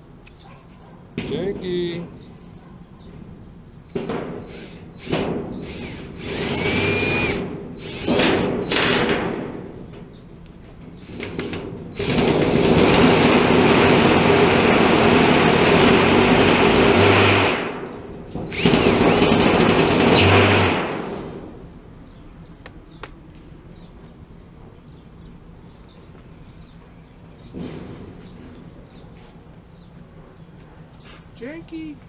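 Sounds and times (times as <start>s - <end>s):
cordless drill running: 4.5s - 9.1s, 12.0s - 17.8s, 18.5s - 21.2s.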